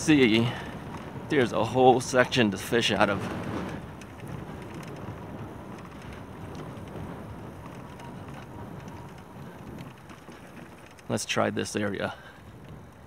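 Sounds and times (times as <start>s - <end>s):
bike tyres rolling hiss: 0.0s - 1.8s, 2.9s - 11.1s.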